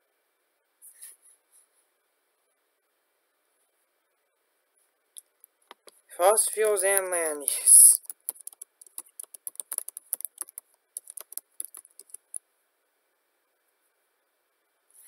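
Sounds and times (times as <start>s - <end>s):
computer keyboard typing: 6.6s - 12.4s.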